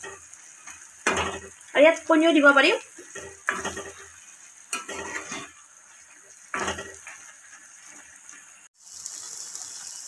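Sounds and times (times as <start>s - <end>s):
metal spatula stirring in a pan: 0.0s - 1.8s, 2.9s - 8.6s
faint simmering hiss: 0.0s - 10.0s.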